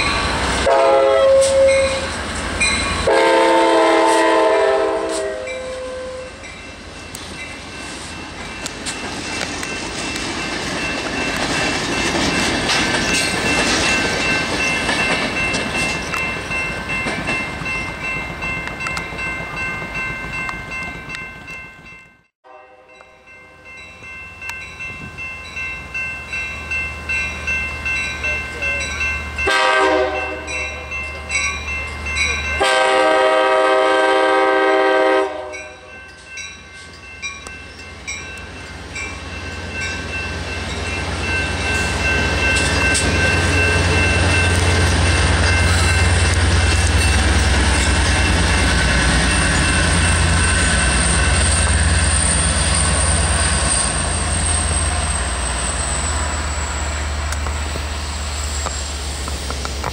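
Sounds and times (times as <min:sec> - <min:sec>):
train horn blasts: 0:00.6 - 0:02.2, 0:03.0 - 0:06.4, 0:22.4 - 0:23.1, 0:29.4 - 0:30.7, 0:32.6 - 0:35.9
train wheels clattering over rails: 0:08.3 - 0:17.7
locomotive engine rumble: 0:37.9 - 0:59.9.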